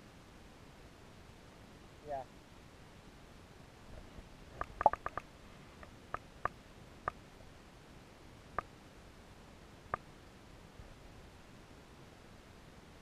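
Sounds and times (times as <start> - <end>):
faint steady hiss: 0.0 - 13.0
sharp underwater clicks: 4.5 - 7.2, 9.9 - 10.1.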